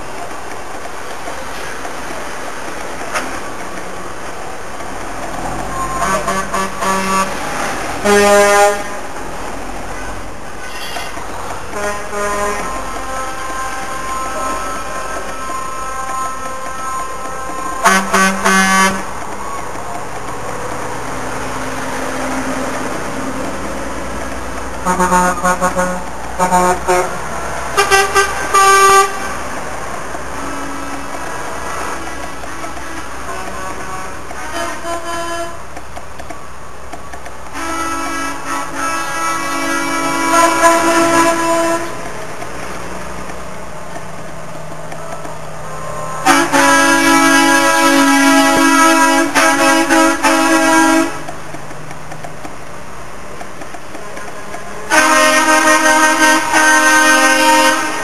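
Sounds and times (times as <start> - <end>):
engine and traffic noise: 0.0 - 58.0
truck horns tooting: 5.3 - 9.2, 9.9 - 19.8, 24.8 - 35.8, 37.5 - 42.2, 45.1 - 51.5, 54.0 - 58.0
high-pitched horn blast: 5.6 - 9.0, 10.6 - 19.1, 24.8 - 27.2, 27.8 - 29.5, 30.4 - 35.6, 37.5 - 42.1, 46.2 - 51.4, 54.2 - 58.0.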